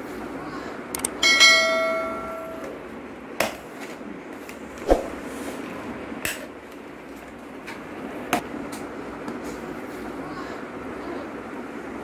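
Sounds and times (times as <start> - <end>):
bell-like ring: 1.2 - 2.7.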